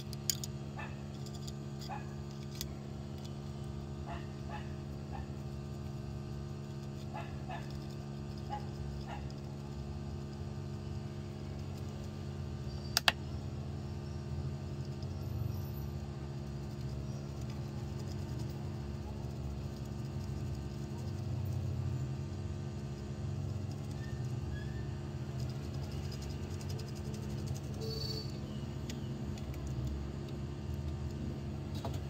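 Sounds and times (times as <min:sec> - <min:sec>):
steady low hum: 0:00.0 - 0:32.0
sharp clicks: 0:12.8 - 0:13.3.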